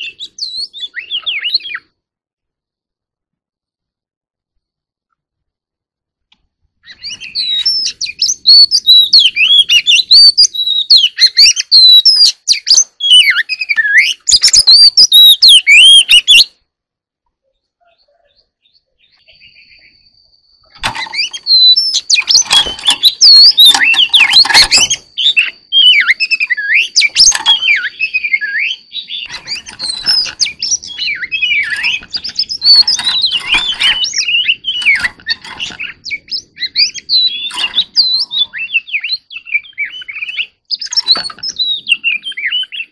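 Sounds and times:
bird singing whistled phrases: 0.0 - 1.9, 6.8 - 16.6, 17.8 - 20.2, 21.0 - 42.9.

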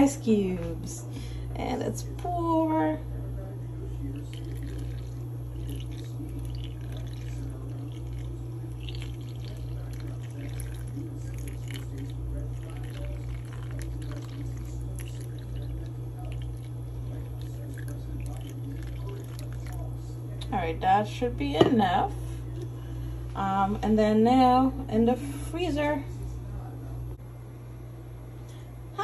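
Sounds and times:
low hum: 0.0 - 29.0
coffee pouring and splashing: 4.1 - 20.1.

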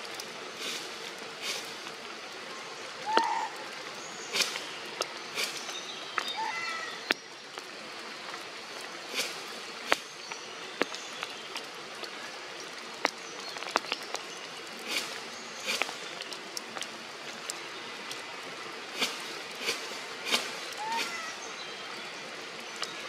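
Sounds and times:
soft rustles: 0.0 - 2.0, 4.3 - 5.8, 18.9 - 21.4
rain falling on foliage: 0.0 - 23.0
sharp drips and ticks: 0.0 - 23.0.

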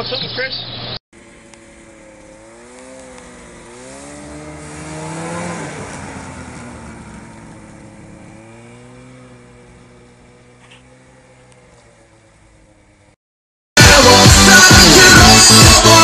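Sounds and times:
snowmobile engine passing by: 1.2 - 13.2.

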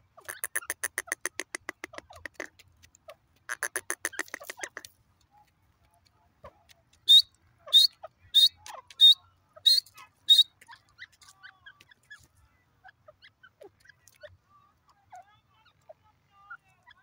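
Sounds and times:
bird giving sharp high calls: 0.2 - 2.5, 3.5 - 4.9, 7.0 - 11.2
faint ticks: 0.4 - 7.0.

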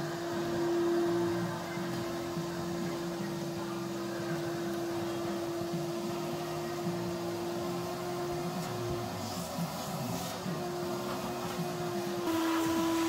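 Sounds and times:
shop vacuum motor whine: 0.0 - 13.0
hose sucking debris: 12.3 - 13.0.

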